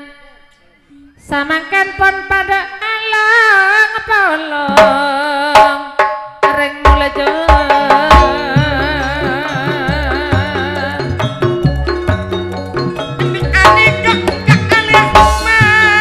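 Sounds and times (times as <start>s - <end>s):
heavy deep drum beats: 4.7s - 16.0s
gamelan ensemble music: 7.8s - 16.0s.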